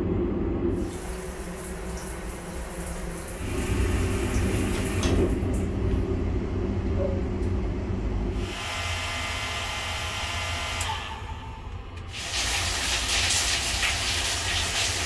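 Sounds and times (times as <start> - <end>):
water spraying: 0.8 - 5.6, 12.1 - 15.0
hair dryer whining: 8.4 - 11.5.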